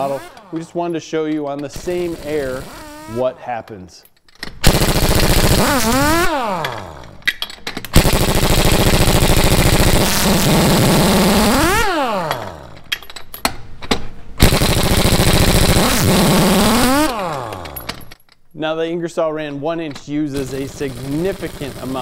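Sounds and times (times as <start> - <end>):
air impact wrench hammering: 4.6 - 12.9, 14.4 - 18.2.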